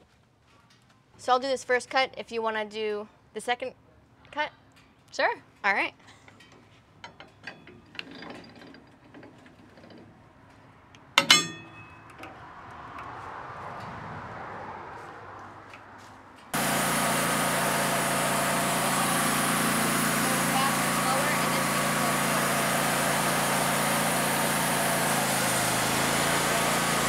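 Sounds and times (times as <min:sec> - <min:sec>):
sharp metallic clank: 0:11.2 - 0:12.2
sawmill engine running: 0:16.5 - 0:27.0.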